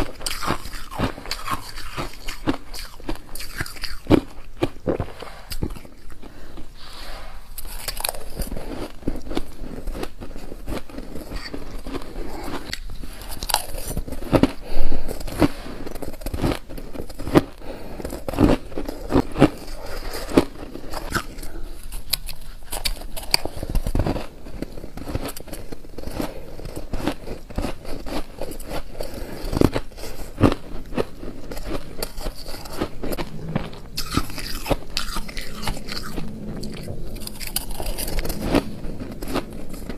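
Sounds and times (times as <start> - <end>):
ice crunching while chewed: 0.0 - 6.9, 7.5 - 39.9.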